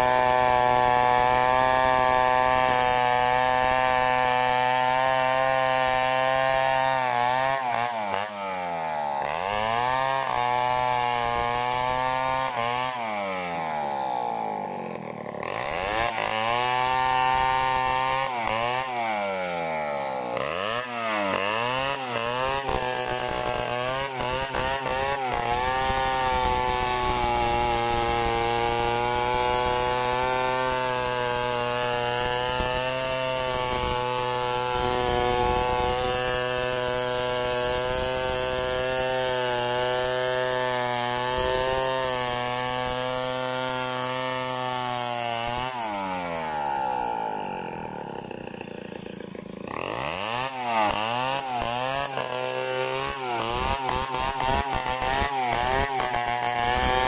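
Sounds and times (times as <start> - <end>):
chainsaw cutting a log: 0.0 - 57.0.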